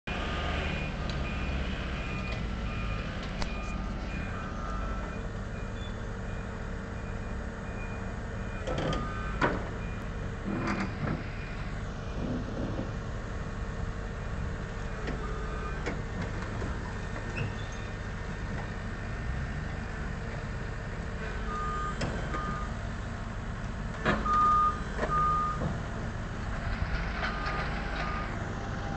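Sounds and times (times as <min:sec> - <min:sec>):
heavy diesel engine running: 0:00.1 - 0:28.9
high warning beep: 0:00.7 - 0:10.1, 0:21.5 - 0:22.7.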